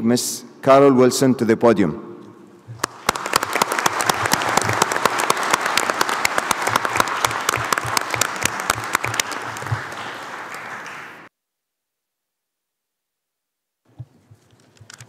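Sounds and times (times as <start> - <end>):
audience applauding: 2.7 - 11.3.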